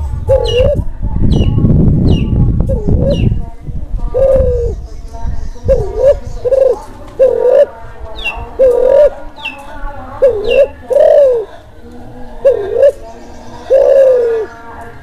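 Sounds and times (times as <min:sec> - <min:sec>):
dove cooing: 0:00.3 - 0:00.9, 0:04.1 - 0:04.8, 0:05.7 - 0:09.3, 0:10.2 - 0:14.7.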